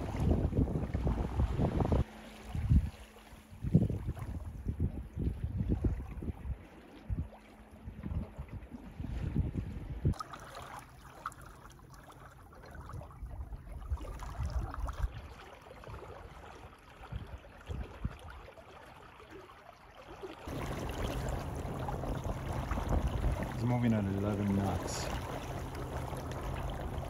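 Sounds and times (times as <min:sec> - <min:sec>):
wind buffeting microphone: 0:00.0 - 0:10.2, 0:20.5 - 0:27.0
water rushing along boat hull: 0:00.0 - 0:27.0.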